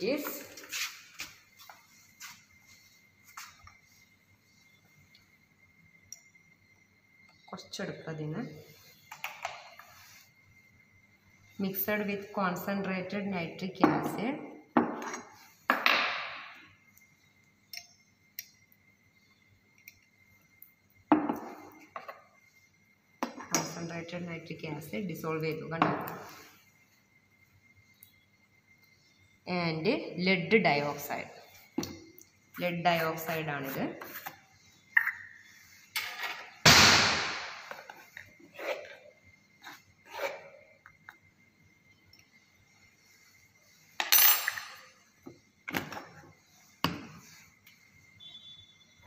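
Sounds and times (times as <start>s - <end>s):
loud bump on lab bench: 36.6s - 37.6s.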